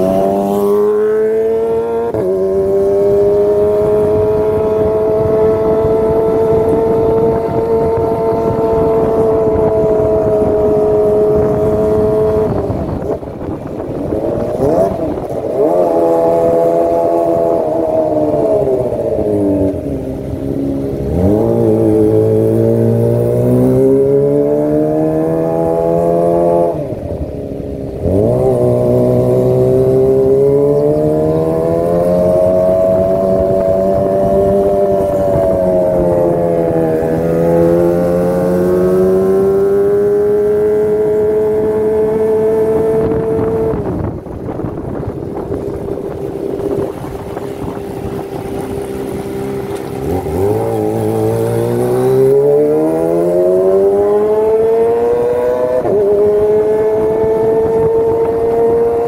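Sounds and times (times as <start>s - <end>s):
motorcycle exhaust revving: 0.0s - 59.0s.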